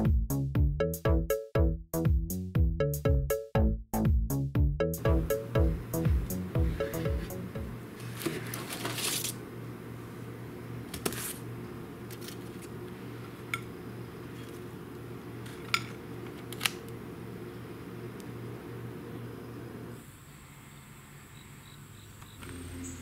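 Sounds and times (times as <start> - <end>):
steady low hum: 5.0 - 21.3
baking tray scraping and rattling: 8.0 - 9.4.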